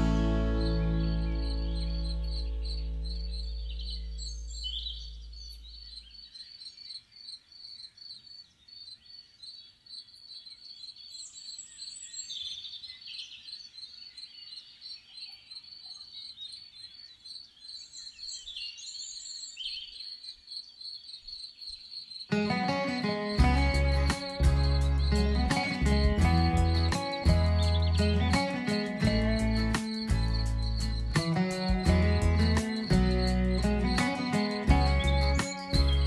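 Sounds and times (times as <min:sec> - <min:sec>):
low guitar note: 0:00.0 - 0:04.2, 0:22.4 - 0:36.0
crickets chirping: 0:00.0 - 0:11.2, 0:19.9 - 0:36.0
birds singing: 0:00.0 - 0:36.0.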